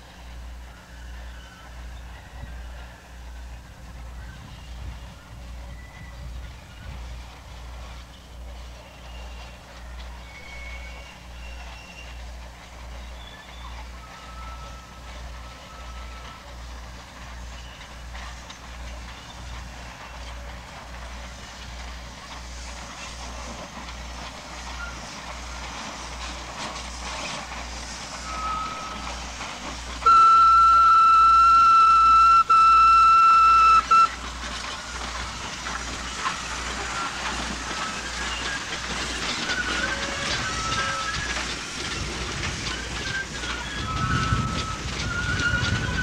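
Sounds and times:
passing train running noise: 0:00.0 - 0:46.0
steam locomotive whistle blast: 0:10.2 - 0:12.2, 0:13.2 - 0:16.5, 0:27.9 - 0:34.3, 0:36.1 - 0:46.0.

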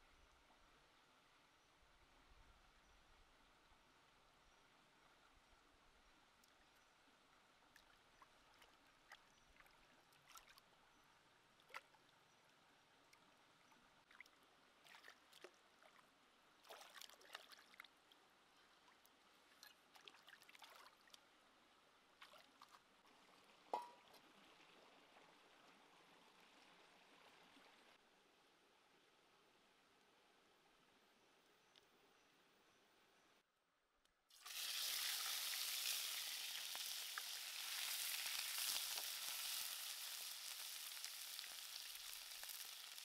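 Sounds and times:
stream water splashing: 0:14.0 - 0:18.0, 0:18.9 - 0:21.2
sharp water plop: 0:23.7 - 0:24.1.

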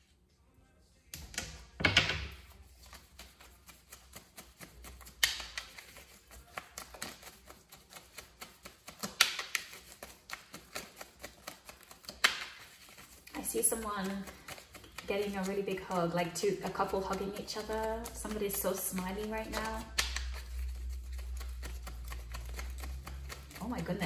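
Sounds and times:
cards clicking while shuffled: 0:02.5 - 0:24.0
card swishes: 0:17.9 - 0:23.6.

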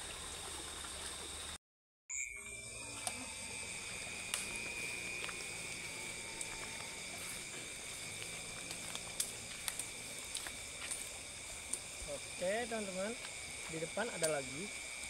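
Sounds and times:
night insects chirring: 0:00.0 - 0:15.0
footsteps through undergrowth: 0:03.8 - 0:12.2.

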